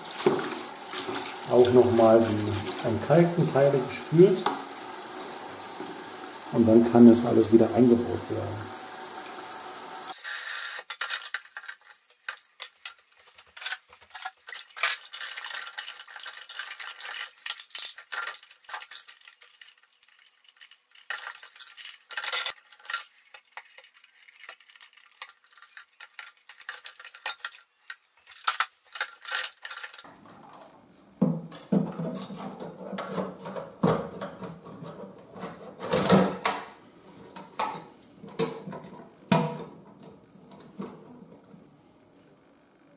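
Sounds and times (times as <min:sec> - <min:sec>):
plastic parts scraping: 0:10.7 - 0:18.9, 0:20.0 - 0:30.7.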